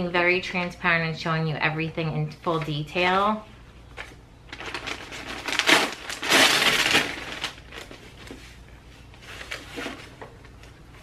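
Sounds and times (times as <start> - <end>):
packaging crinkling and rustling: 3.9 - 11.0.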